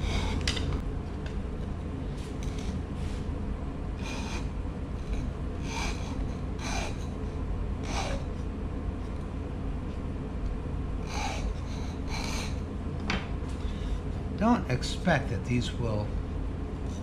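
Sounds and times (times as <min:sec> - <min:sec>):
low hum: 0:00.0 - 0:17.0
file rasping on wood: 0:04.0 - 0:04.5, 0:05.6 - 0:07.0, 0:07.9 - 0:08.3, 0:11.1 - 0:12.6.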